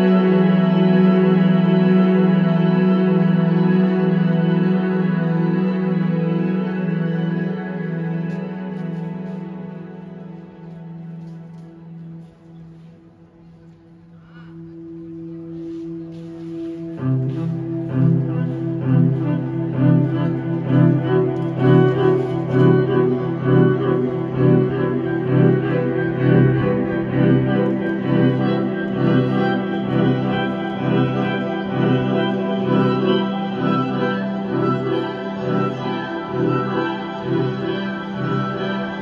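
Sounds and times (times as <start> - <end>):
low drone: 0.0 - 39.0
amplified violin: 16.1 - 39.0.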